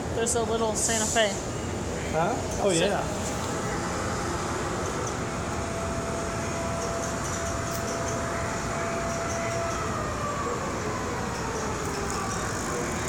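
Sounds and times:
model trains running: 0.0s - 10.0s
hall noise: 2.4s - 11.5s.

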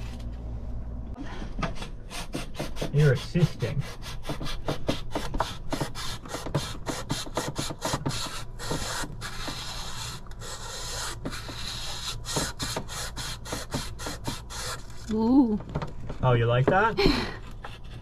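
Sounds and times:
sandpaper rubbing on pipe: 2.1s - 15.0s.

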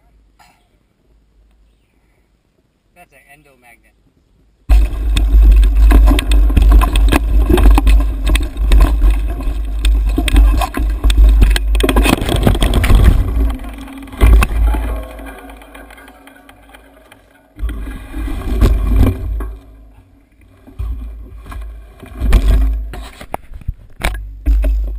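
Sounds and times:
wind rumble on camera: 4.0s - 16.0s
bike crashing to ground: 4.7s - 20.0s, 20.8s - 23.3s
mountain bike rattling: 4.7s - 24.9s.

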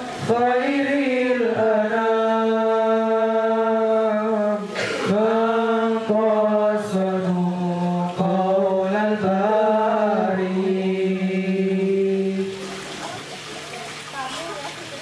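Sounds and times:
man chanting through microphone: 0.1s - 12.6s.

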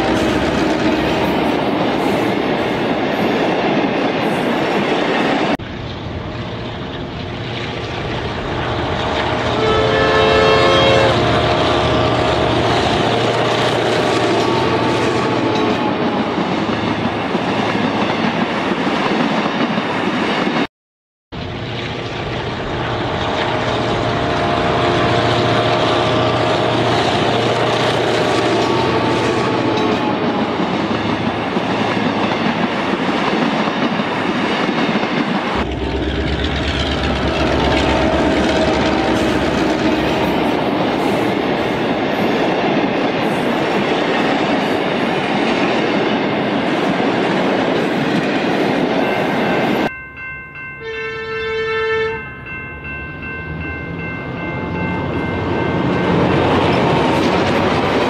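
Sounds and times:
electronic horn-like tones: 8.6s - 13.4s, 50.8s - 52.3s
model train whirring rattle: 30.6s - 41.8s.

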